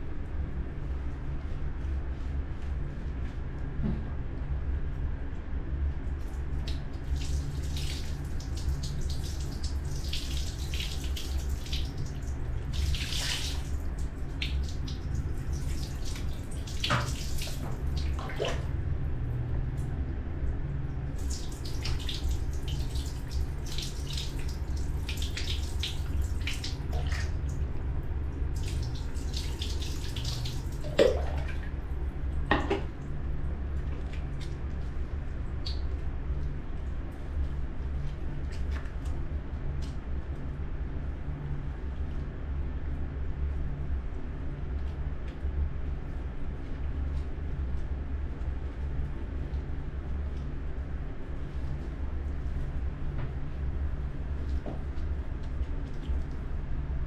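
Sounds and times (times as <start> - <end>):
steady low hum: 0.0 - 57.0
water pouring and splashing: 6.4 - 18.8, 21.0 - 27.8, 28.4 - 31.9.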